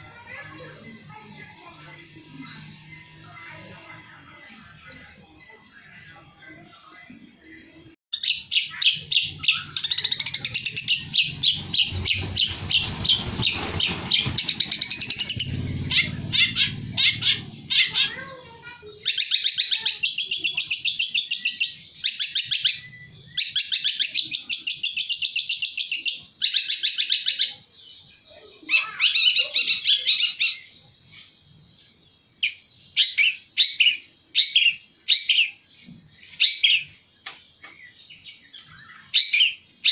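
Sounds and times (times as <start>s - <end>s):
bird chattering song: 0.0s - 39.9s
low rumble: 10.0s - 18.0s.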